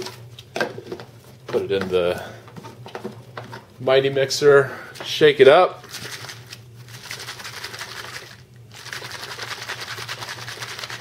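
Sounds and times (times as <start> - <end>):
shaker bottle sloshing and knocking: 5.9 - 11.0.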